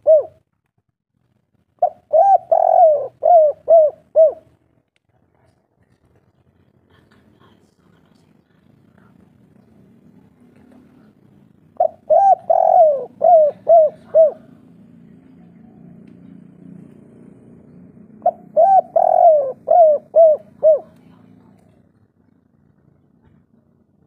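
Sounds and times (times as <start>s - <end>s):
dove cooing: 0.0s - 0.4s, 1.8s - 4.6s, 11.7s - 14.7s, 18.0s - 21.3s.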